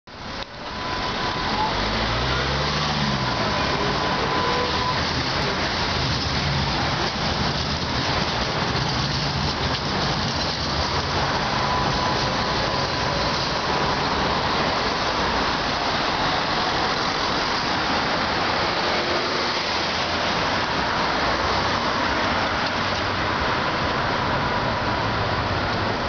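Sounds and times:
street traffic rush: 0.1s - 26.0s
trams passing: 0.1s - 26.0s
faint steady whistle: 3.3s - 5.0s.

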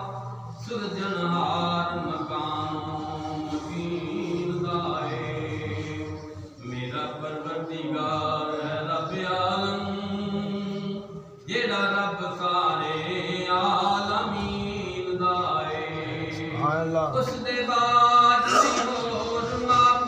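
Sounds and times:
man chanting devotional verse: 0.0s - 20.0s.

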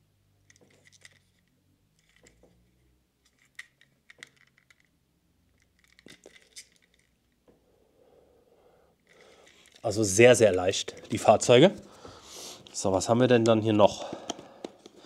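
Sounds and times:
small plastic parts clicking: 0.4s - 2.6s, 3.2s - 4.9s, 5.5s - 7.2s.

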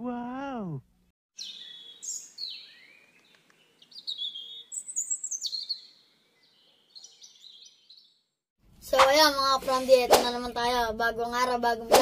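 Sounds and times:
birds chirping: 1.4s - 8.4s.

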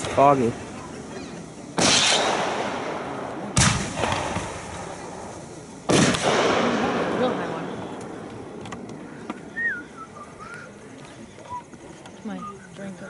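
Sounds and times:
fireworks bangs: 0.0s - 9.6s.

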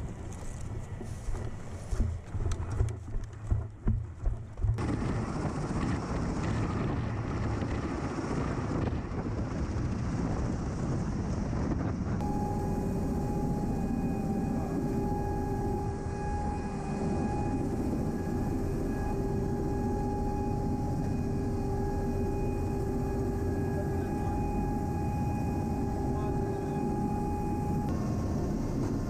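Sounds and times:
tiltrotor aircraft noise: 0.0s - 29.0s
wind buffeting microphone: 0.0s - 29.0s
aircraft cabin drone with whine: 11.6s - 29.0s.

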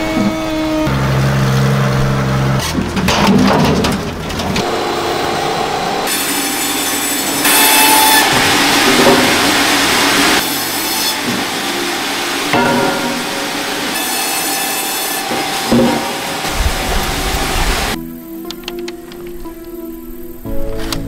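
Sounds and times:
timber being sawn: 0.0s - 3.0s, 4.5s - 18.0s.

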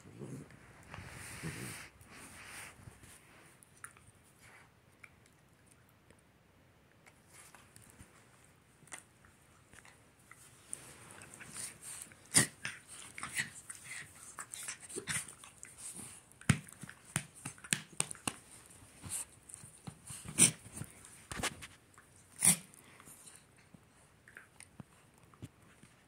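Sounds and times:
small dogs growling and snarling: 0.0s - 1.9s, 11.2s - 16.1s, 20.1s - 20.9s, 22.3s - 23.0s.

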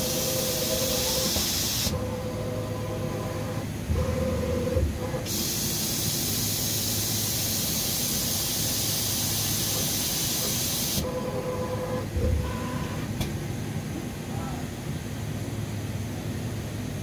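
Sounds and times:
compressed air hissing: 0.7s - 1.9s, 5.3s - 11.0s.

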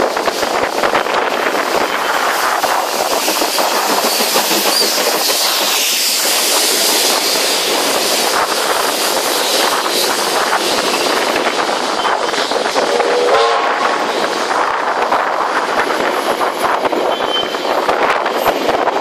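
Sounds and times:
steam hissing from locomotive: 0.0s - 19.0s
train wheels clattering over joints: 0.0s - 19.0s.

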